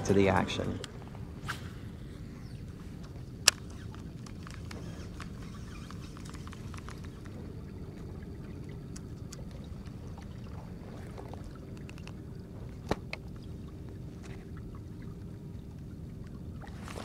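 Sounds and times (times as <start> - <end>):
low rumble on the water: 0.0 - 17.0
fishing reel clicks: 2.4 - 7.3.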